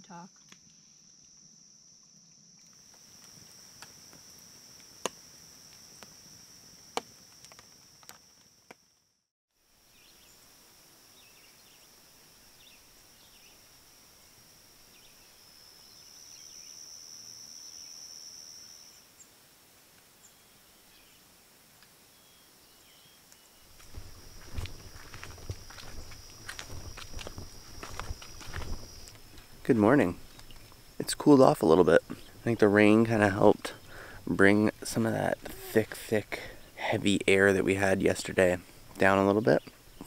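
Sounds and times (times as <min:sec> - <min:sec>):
crickets trilling: 0:00.0 - 0:09.0, 0:09.7 - 0:19.2, 0:22.1 - 0:40.0
campfire crackling and popping: 0:02.5 - 0:09.0, 0:23.3 - 0:40.0
faint bird chirps: 0:14.9 - 0:19.3, 0:22.1 - 0:23.8.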